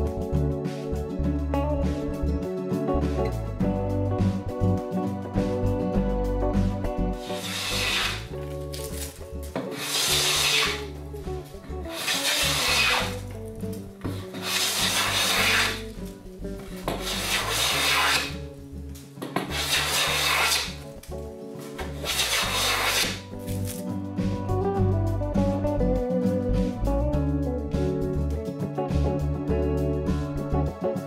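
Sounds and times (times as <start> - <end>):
hand plane shearing wood: 7.2 - 11.0, 11.7 - 13.4, 14.0 - 16.0, 16.6 - 18.4, 19.3 - 20.8, 21.8 - 23.2.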